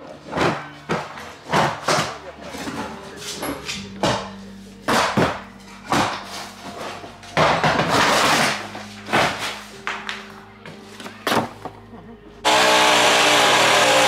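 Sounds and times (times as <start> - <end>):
wooden boards knocking and banging: 0.0 - 3.0, 4.0 - 6.8, 7.4 - 10.2
wood clattering scrape: 0.2 - 11.8.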